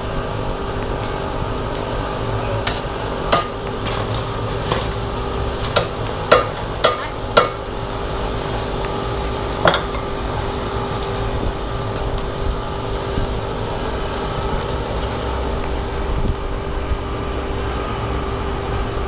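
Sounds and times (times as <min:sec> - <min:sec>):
steady background hum: 0:00.0 - 0:19.0
hammer striking metal anvil: 0:02.6 - 0:03.6, 0:05.8 - 0:07.6.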